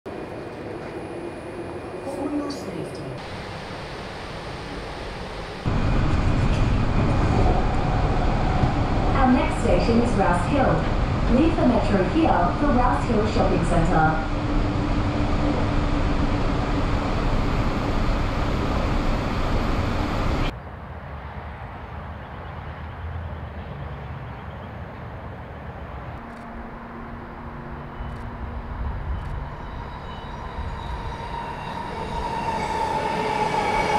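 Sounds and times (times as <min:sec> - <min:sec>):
metro train passing: 0:00.1 - 0:33.9
train running on track: 0:00.1 - 0:33.9
steady whine: 0:03.2 - 0:20.5.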